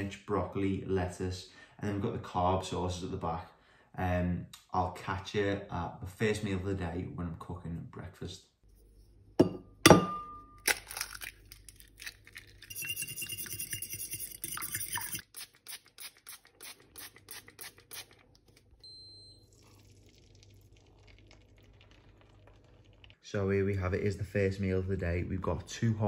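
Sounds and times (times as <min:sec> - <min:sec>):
egg cracking on bowl: 0:10.6 - 0:18.3
eggs beaten in bowl: 0:12.2 - 0:15.7.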